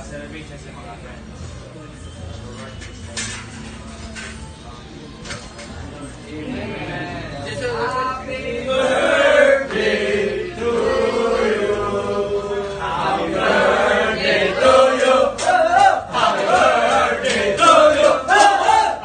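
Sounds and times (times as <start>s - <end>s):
group of people singing: 8.2s - 19.0s.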